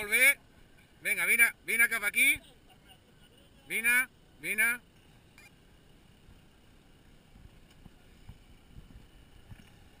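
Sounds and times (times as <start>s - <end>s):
wind buffeting microphone: 7.3s - 10.0s.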